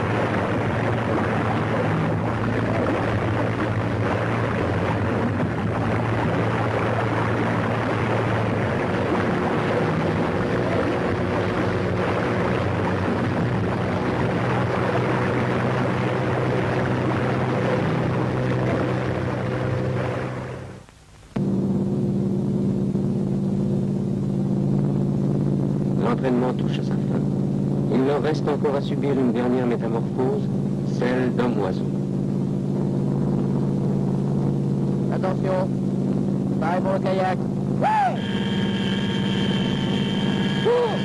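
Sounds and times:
rushing water wash: 0:00.0 - 0:20.8
aircraft engines inside cabin: 0:00.0 - 0:41.0
boat engine droning: 0:00.0 - 0:41.0.

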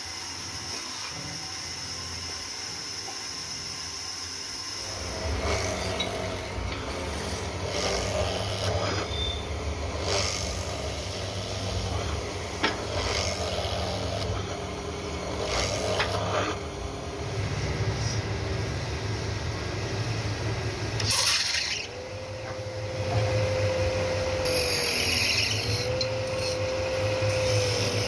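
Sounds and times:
lathe motor humming: 0:00.2 - 0:28.0
wood rasping on spinning bit: 0:04.2 - 0:17.1, 0:21.0 - 0:22.0, 0:22.6 - 0:28.0.

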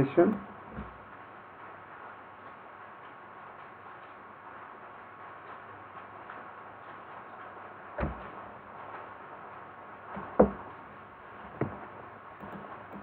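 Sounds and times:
low background hiss: 0:00.0 - 0:13.0
keyboard and mouse clicks: 0:12.4 - 0:13.0.

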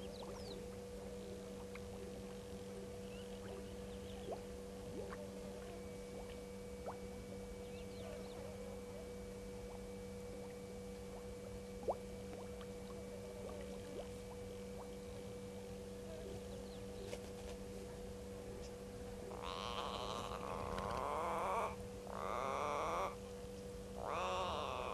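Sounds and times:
electrical hum: 0:00.0 - 0:24.9
faint bush ambience: 0:00.0 - 0:24.9
animal calling: 0:19.3 - 0:23.2, 0:24.0 - 0:24.9.

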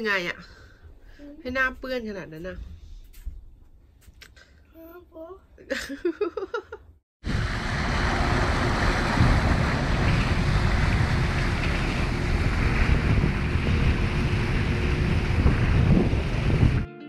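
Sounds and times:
water churning in boat wake: 0:07.2 - 0:16.8
wind buffeting microphone: 0:07.2 - 0:16.9
faint engine hum: 0:07.3 - 0:16.8.

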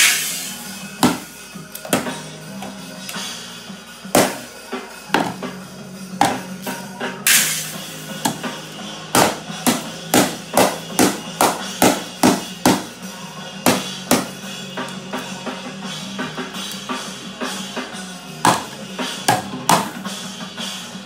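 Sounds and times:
background music: 0:00.0 - 0:21.0
child beating a toy drum: 0:18.4 - 0:20.0.

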